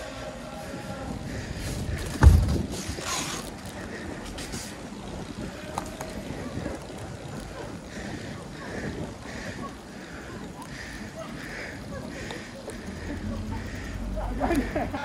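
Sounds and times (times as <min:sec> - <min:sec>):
bicycle rolling on pavement: 0:00.0 - 0:15.0
wind on microphone: 0:00.0 - 0:15.0
hard thump: 0:02.1 - 0:02.9.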